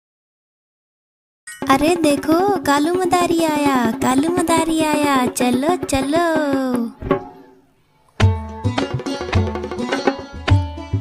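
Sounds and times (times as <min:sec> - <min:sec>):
instrumental melody: 0:01.5 - 0:11.0
steady drum beat: 0:01.7 - 0:07.4.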